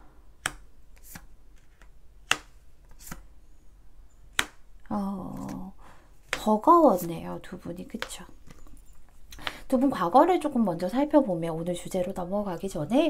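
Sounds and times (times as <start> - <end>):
cards tapped on a table: 0.4 - 3.2
person humming: 4.9 - 5.8.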